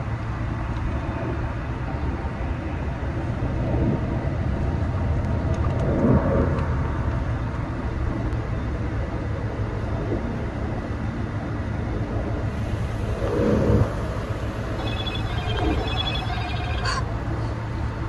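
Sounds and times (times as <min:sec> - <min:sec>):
car driving along a road: 0:11.7 - 0:18.0.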